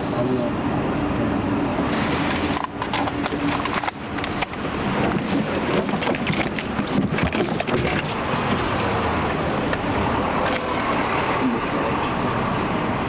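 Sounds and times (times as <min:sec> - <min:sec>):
knocks and clicks against car interior: 0:02.7 - 0:08.6.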